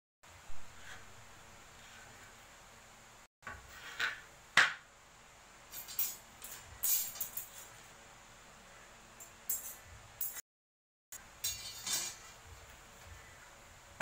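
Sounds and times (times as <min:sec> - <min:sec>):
metal hand tools clinking: 0:05.7 - 0:07.7, 0:09.2 - 0:10.4, 0:11.4 - 0:12.3.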